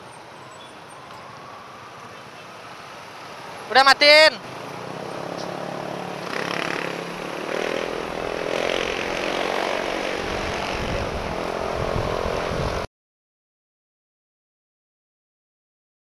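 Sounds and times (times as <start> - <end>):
motorcycle engines drone: 0.0 - 12.9
wind buffeting microphone: 8.1 - 12.9.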